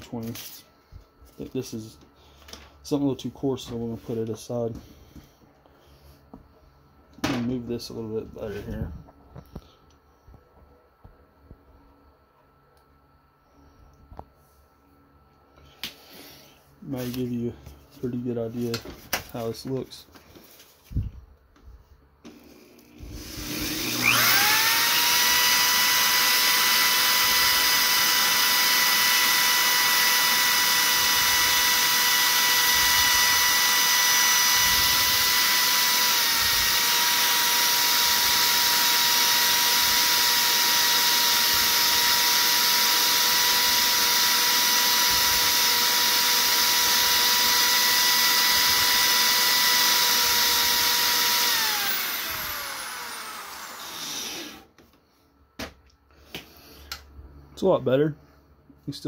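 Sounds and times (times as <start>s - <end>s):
power drill whining: 22.3s - 54.8s.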